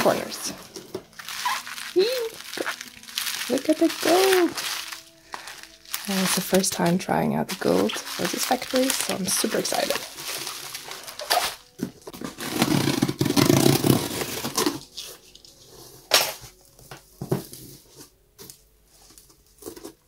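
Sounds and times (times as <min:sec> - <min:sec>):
cardboard flaps tapping and rustling: 0:07.5 - 0:14.9.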